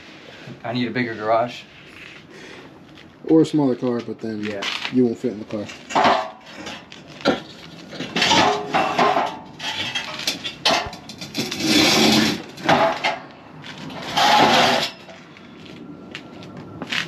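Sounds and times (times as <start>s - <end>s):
metal clanking of car wheel: 5.6s - 15.2s.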